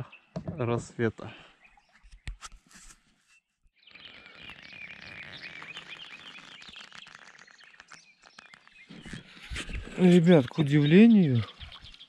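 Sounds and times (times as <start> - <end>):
small birds chirping and singing: 3.8 - 12.0.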